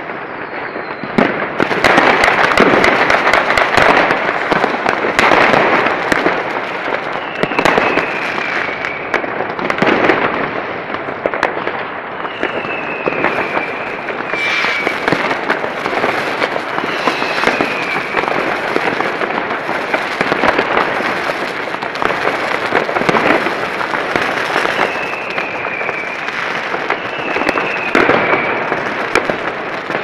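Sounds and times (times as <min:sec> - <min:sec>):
whistling rocket: 0:00.0 - 0:04.2, 0:06.9 - 0:10.1, 0:12.1 - 0:20.8, 0:23.0 - 0:29.3
fireworks crackling and banging: 0:00.0 - 0:30.0.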